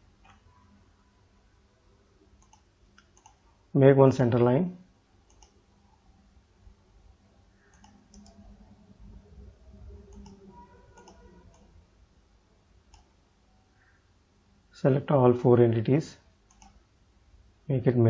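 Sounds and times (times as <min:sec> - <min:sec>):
low background hum: 0:00.0 - 0:18.0
faint computer mouse clicks: 0:02.4 - 0:03.4, 0:05.3 - 0:05.6, 0:07.6 - 0:08.4, 0:10.1 - 0:10.4, 0:11.0 - 0:11.7, 0:12.9 - 0:13.1, 0:16.5 - 0:16.8.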